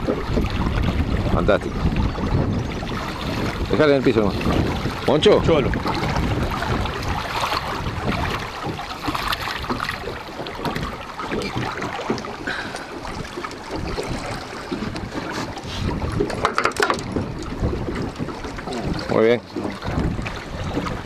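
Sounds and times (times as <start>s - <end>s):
moving water: 0.0s - 21.0s
wind buffeting microphone: 0.0s - 21.0s
fish splashing: 5.7s - 19.1s.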